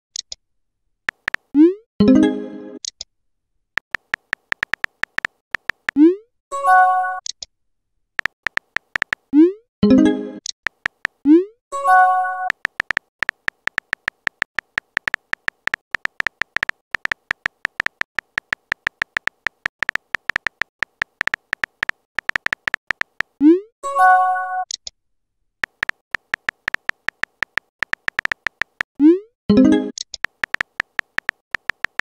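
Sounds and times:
keyboard tap clicks: 1.1 - 1.5, 3.8 - 6.0, 8.2 - 9.3, 10.7 - 11.2, 12.5 - 23.4, 25.6 - 28.9, 30.2 - 32.0.

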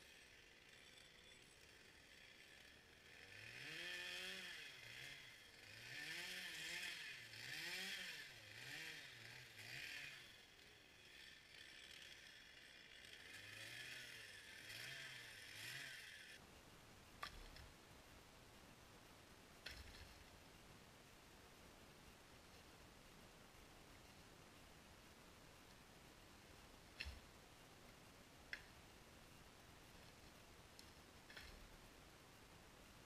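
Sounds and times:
faint chainsaw running: 0.0 - 16.4.

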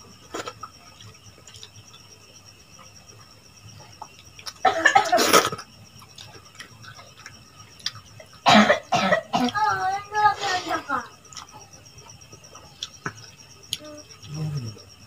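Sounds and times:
person coughing: 4.6 - 5.5, 8.5 - 9.5.

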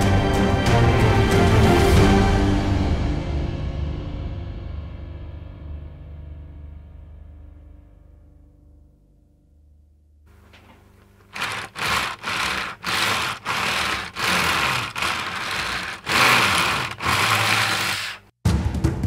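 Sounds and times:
plastic toy tracks rattling: 11.3 - 18.3.

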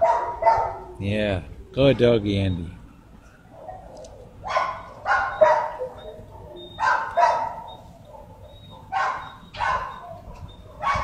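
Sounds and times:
dog barking: 0.0 - 0.9, 3.5 - 11.0.

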